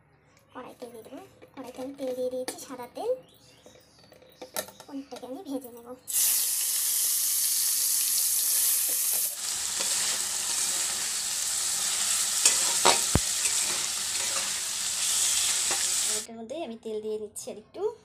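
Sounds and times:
cheese cubes sizzling in oil: 0:06.1 - 0:16.3
metal spatula scraping pan: 0:09.4 - 0:16.2.

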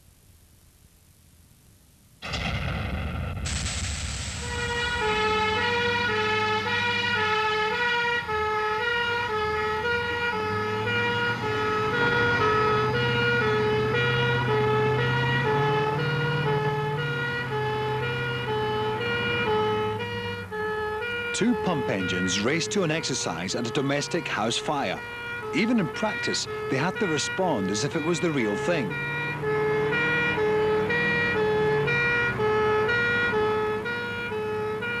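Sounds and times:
truck engine accelerating: 0:02.4 - 0:35.0
two-tone fire engine siren: 0:04.4 - 0:35.0.

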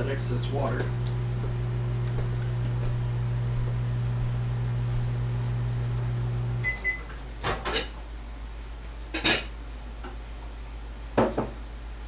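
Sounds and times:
microwave beep: 0:06.5 - 0:07.2
dishes and pots clinking: 0:07.4 - 0:08.0, 0:09.1 - 0:09.6.

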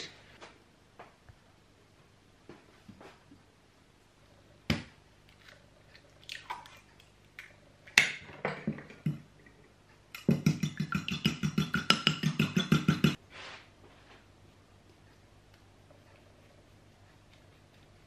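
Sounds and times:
fork beating egg in bowl: 0:10.1 - 0:13.2.

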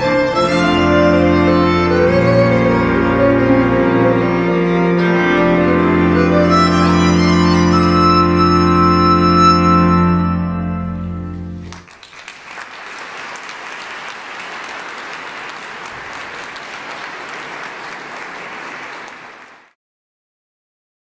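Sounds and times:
pipe organ and violin chord: 0:00.0 - 0:11.7
audience applause: 0:11.6 - 0:19.8.

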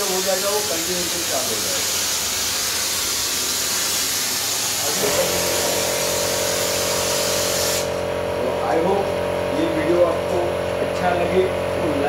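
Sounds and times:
spray gun hissing foam: 0:00.0 - 0:08.3
steady mechanical hum: 0:00.0 - 0:12.0.

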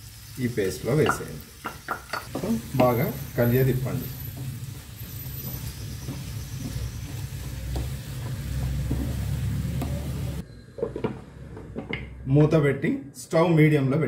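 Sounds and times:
food sizzling in pan: 0:00.0 - 0:10.4
glass lid clinking: 0:01.0 - 0:03.0
spatula scraping pan: 0:02.3 - 0:10.4.

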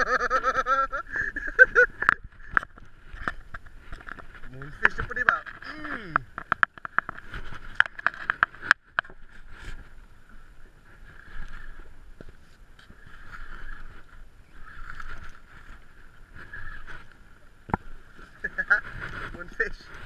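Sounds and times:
fishing reel whirring: 0:13.0 - 0:15.7, 0:16.4 - 0:17.1.

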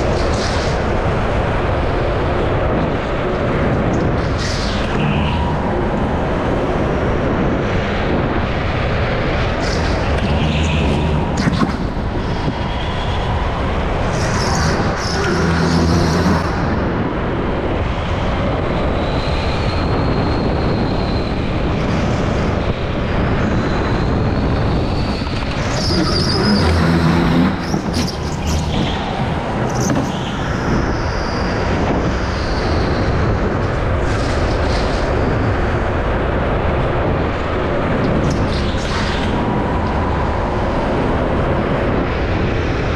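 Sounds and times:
rushing air on microphone: 0:00.0 - 0:42.9
go-kart engine rumble: 0:08.8 - 0:17.6, 0:21.0 - 0:32.4
high-pitched tyre squeals: 0:14.1 - 0:16.7, 0:23.7 - 0:31.5.

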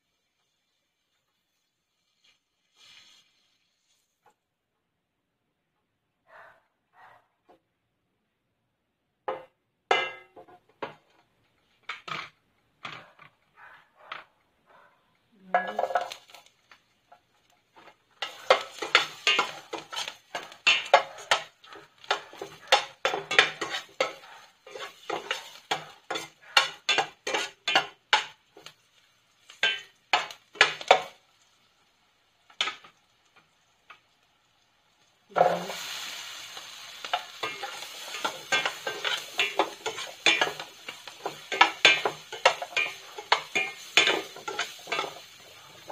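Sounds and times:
frying sizzle: 0:00.0 - 0:04.4, 0:09.3 - 0:13.0, 0:15.4 - 0:45.9
metal spoon clinking on frying pan: 0:09.3 - 0:10.3, 0:18.2 - 0:28.4, 0:29.6 - 0:31.2, 0:37.0 - 0:45.4.

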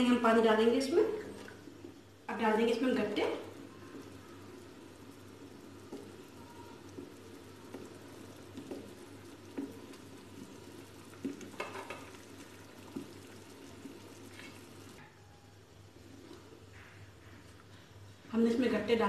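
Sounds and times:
gravy bubbling: 0:00.0 - 0:15.0.

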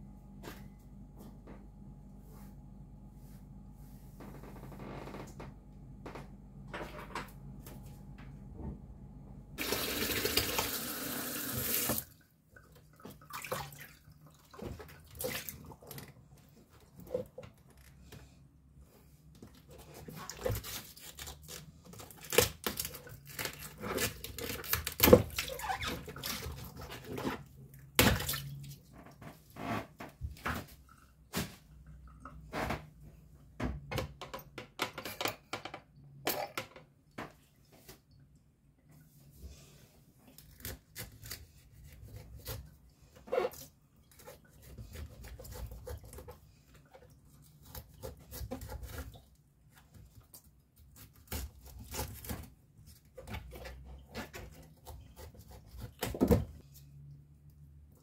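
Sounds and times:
sink tap running: 0:09.6 - 0:12.0
knocks and clatter of washing up: 0:32.2 - 0:37.5.

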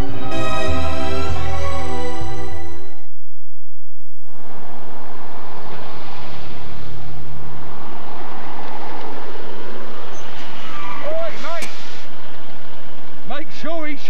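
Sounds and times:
traffic rumble: 0:04.2 - 0:14.0.

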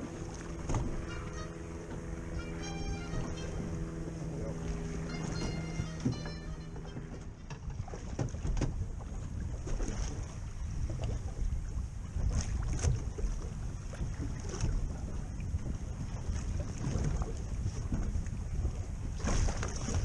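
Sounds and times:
water lapping against hull: 0:00.0 - 0:20.0
wind buffeting microphone: 0:00.0 - 0:20.0.

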